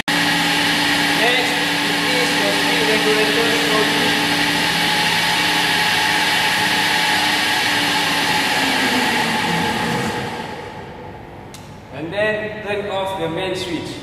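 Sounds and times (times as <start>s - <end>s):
electric motor whining: 0.0s - 10.9s.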